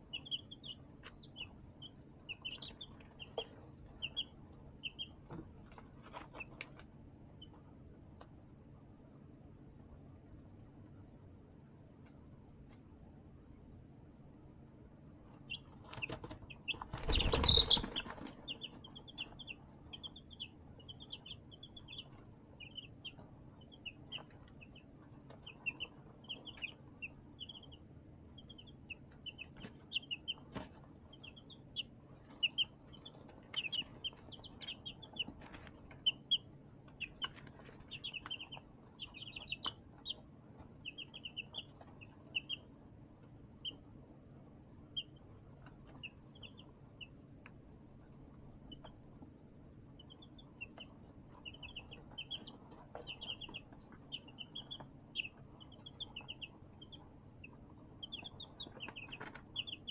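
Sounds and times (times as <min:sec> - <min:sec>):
chicks peeping: 0:00.0 - 0:13.7, 0:15.0 - 0:59.9.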